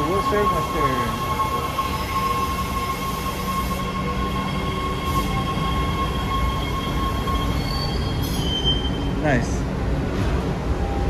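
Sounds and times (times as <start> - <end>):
high whine: 0.0 - 8.6
subway train rumbling: 0.0 - 11.0.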